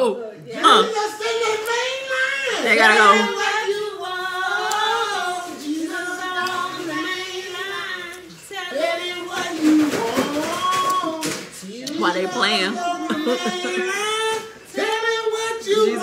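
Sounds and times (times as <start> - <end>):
woman singing gospel: 0.5 - 16.0.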